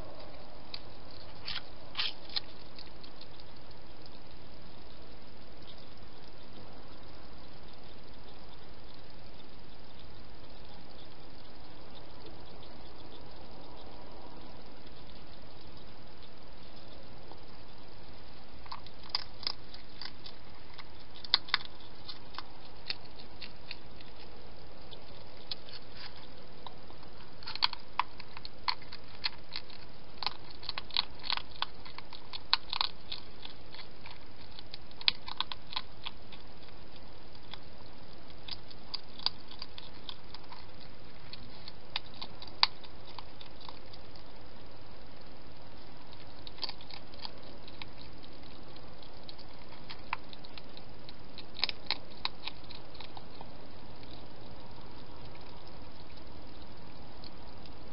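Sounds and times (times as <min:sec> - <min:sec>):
hedgehog chewing: 0:00.0 - 0:57.9
steady hiss: 0:00.0 - 0:57.9.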